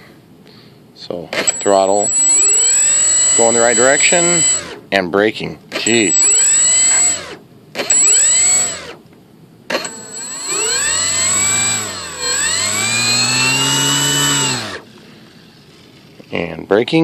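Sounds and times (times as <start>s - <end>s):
electric motor whine: 1.4s - 4.8s, 5.8s - 9.0s, 9.7s - 15.8s.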